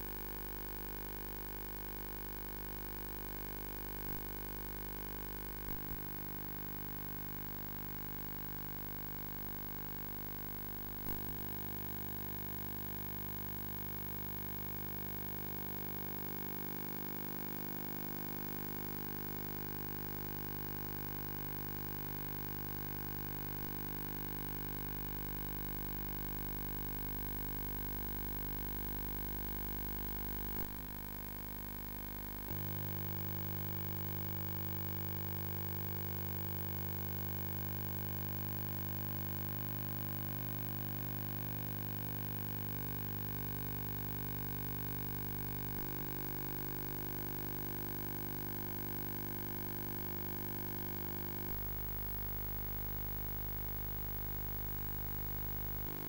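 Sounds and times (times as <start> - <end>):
electrical hum with buzzing: 0.0 - 56.0.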